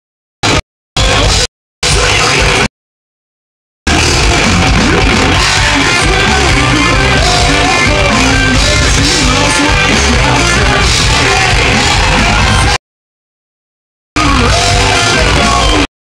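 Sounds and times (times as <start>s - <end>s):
electric guitars: 3.9s - 12.8s, 14.2s - 15.9s
live rock band playing: 3.9s - 12.8s, 14.2s - 15.9s.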